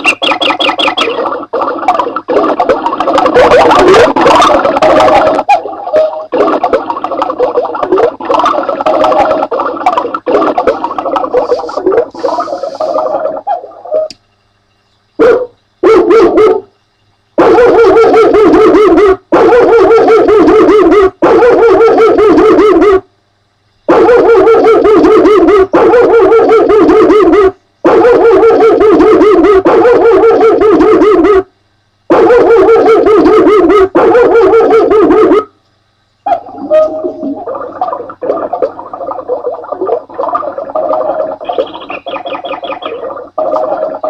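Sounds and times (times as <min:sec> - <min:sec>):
recorded dog barking through speaker: 0:00.0 - 0:14.1, 0:15.2 - 0:16.7, 0:17.4 - 0:23.0, 0:23.9 - 0:31.4, 0:32.1 - 0:35.5, 0:36.2 - 0:40.3
electronic device sound: 0:00.0 - 0:14.3, 0:23.9 - 0:31.5, 0:32.1 - 0:35.5, 0:36.3 - 0:44.0.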